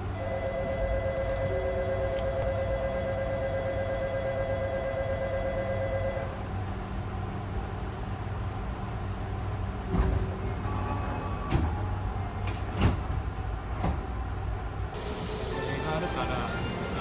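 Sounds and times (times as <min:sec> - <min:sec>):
train humming: 0:00.0 - 0:17.0
train doors closing: 0:09.6 - 0:17.0.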